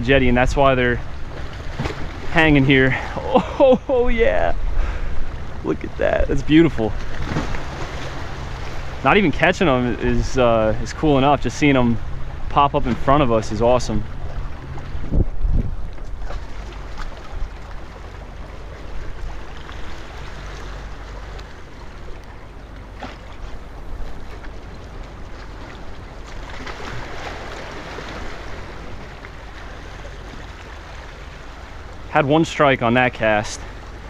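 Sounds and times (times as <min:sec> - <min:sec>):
wind rumbling on microphone: 0:00.0 - 0:32.0
waves splashing against boulders: 0:00.0 - 0:34.0.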